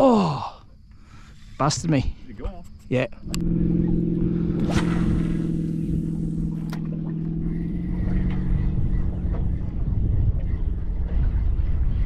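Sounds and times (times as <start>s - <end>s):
boat motor running: 2.7s - 12.0s.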